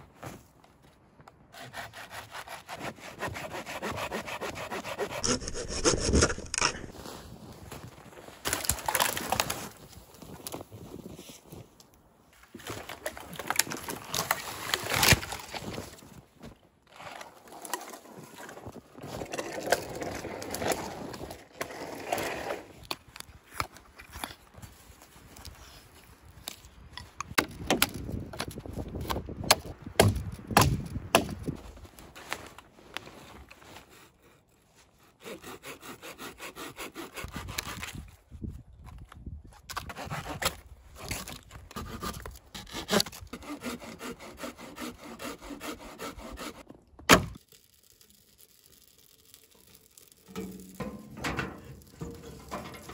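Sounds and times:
saw cutting through log: 1.6s - 6.9s, 35.0s - 37.8s, 41.8s - 46.7s.

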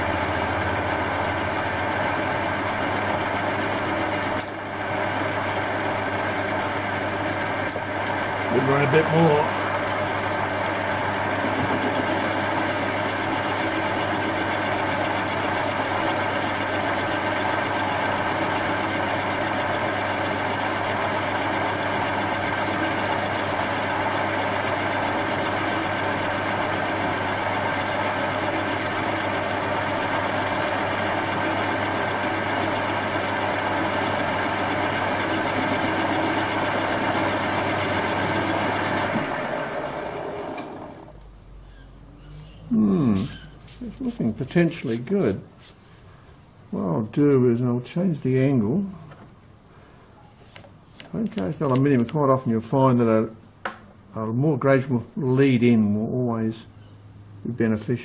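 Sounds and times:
metal lathe cutting: 0.0s - 40.9s
lathe spinning down: 0.0s - 41.2s.

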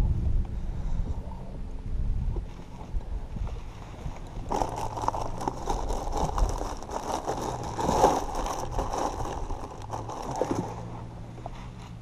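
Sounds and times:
low steady hum: 0.0s - 12.0s
scraping and rattling handling noises: 3.5s - 12.0s.

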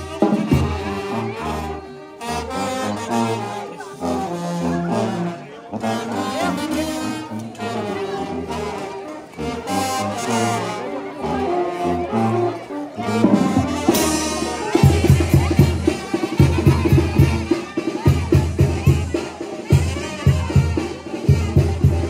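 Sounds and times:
brass band playing: 0.0s - 22.0s
rapid drum beat: 13.2s - 22.0s.

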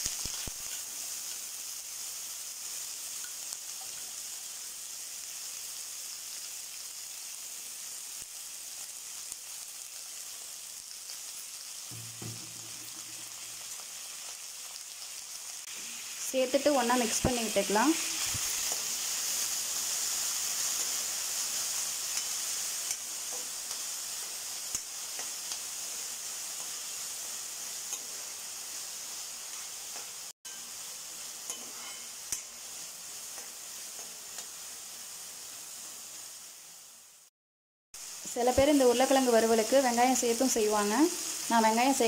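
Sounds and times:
potatoes sizzling in hot oil: 0.0s - 37.3s, 38.0s - 42.0s
metal spatula scraping pan: 31.5s - 32.5s.

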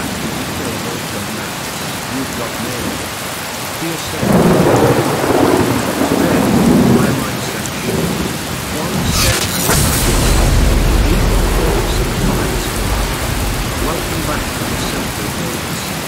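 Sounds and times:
steady rain: 0.0s - 16.0s
thunder crack and rumble: 4.1s - 16.0s.

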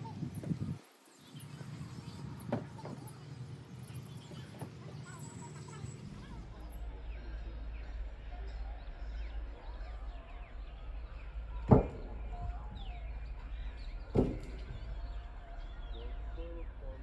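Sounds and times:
birds chirping: 0.0s - 17.0s
steady low rumble: 0.0s - 17.0s
heavy thumps: 11.6s - 12.6s.

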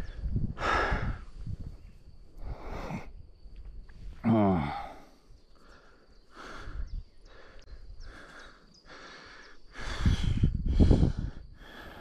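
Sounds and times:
man breathing heavily: 0.0s - 3.3s, 4.2s - 12.0s.

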